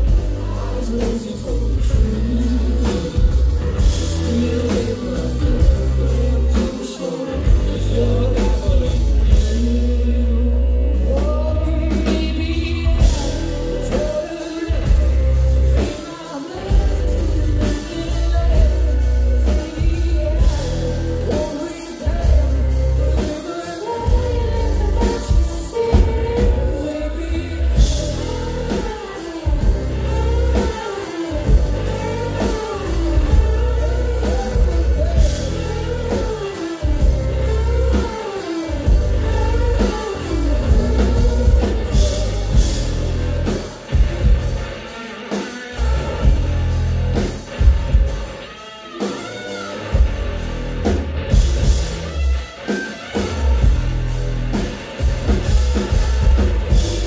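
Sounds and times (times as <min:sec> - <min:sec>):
live rock band playing: 0:00.0 - 0:57.0.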